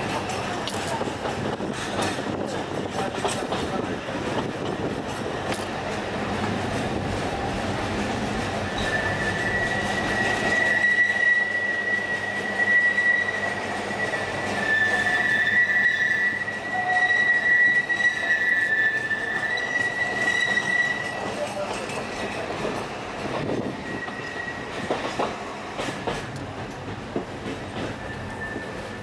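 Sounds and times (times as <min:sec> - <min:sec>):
train wheels squealing on rails: 0:00.0 - 0:06.0, 0:08.3 - 0:29.0
train rumbling: 0:00.0 - 0:29.0.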